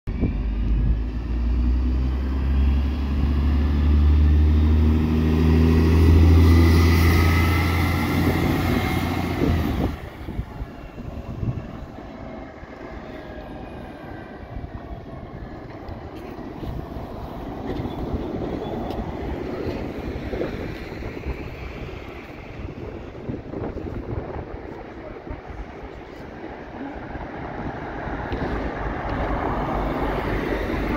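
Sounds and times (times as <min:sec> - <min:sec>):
bus diesel engine accelerating: 0:00.1 - 0:30.9
street noise: 0:00.1 - 0:30.9.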